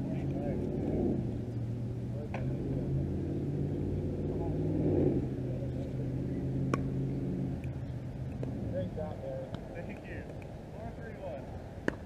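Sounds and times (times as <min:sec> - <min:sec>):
low motor hum: 0:00.0 - 0:12.0
pickleball tap: 0:06.7 - 0:06.9.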